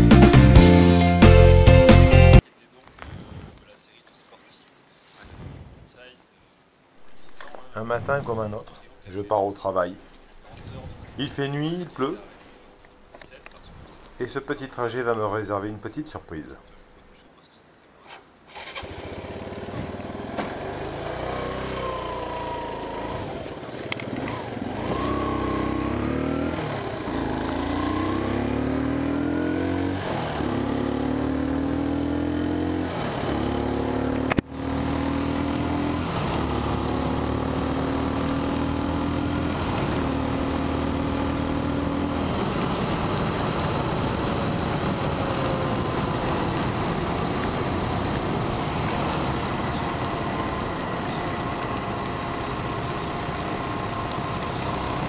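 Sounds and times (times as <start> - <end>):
tyres on wet road: 18.0 - 55.0
motorcycle engine accelerating: 18.5 - 55.0.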